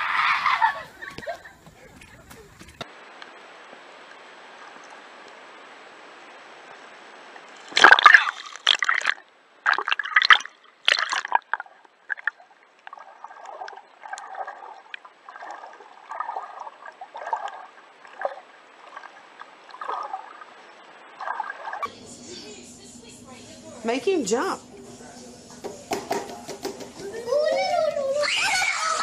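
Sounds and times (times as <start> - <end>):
water splashing and gurgling: 4.4 - 21.9.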